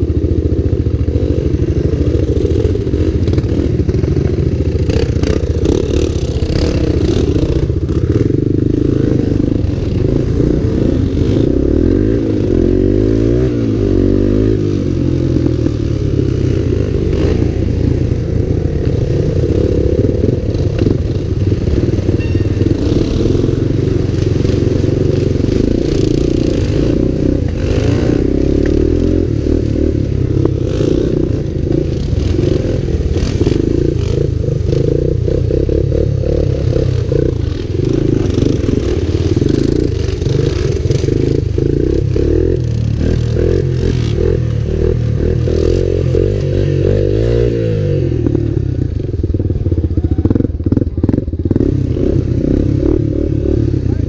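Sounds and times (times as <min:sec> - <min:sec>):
three-wheeler engine revving: 0:00.0 - 0:54.0.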